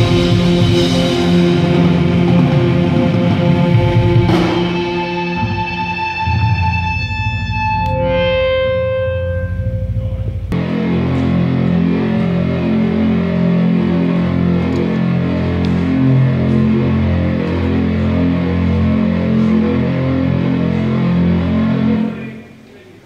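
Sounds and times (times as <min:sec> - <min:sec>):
pulsing bass: 0:00.0 - 0:22.2
rock band playing live: 0:00.0 - 0:22.2
held synthesizer tone: 0:04.6 - 0:10.6.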